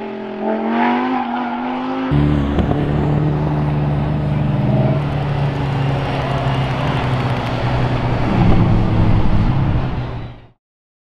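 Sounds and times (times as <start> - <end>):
sports car engine driving past: 2.0 - 10.4.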